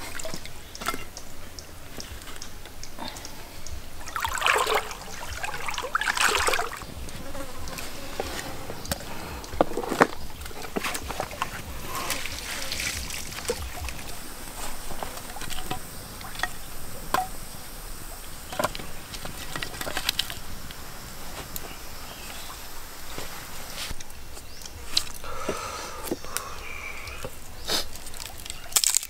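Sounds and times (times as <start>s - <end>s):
faint steady hiss: 0.0s - 29.0s
firewood clicking and knocking: 6.3s - 17.5s, 18.4s - 21.7s.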